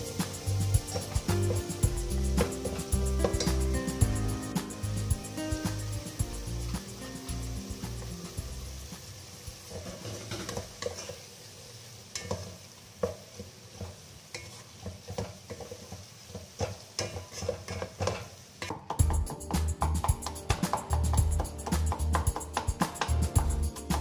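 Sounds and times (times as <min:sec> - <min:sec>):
background music: 0:00.0 - 0:09.7, 0:19.0 - 0:24.0
light sizzle: 0:00.0 - 0:24.0.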